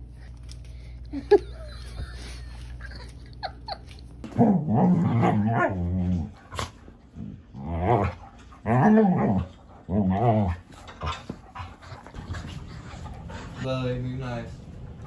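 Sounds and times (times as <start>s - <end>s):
dog play-growling: 4.2s - 15.0s.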